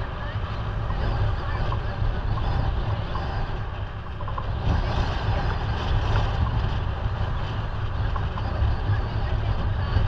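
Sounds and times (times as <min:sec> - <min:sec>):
road and engine noise: 0:00.0 - 0:10.0
wind buffeting microphone: 0:00.0 - 0:10.0.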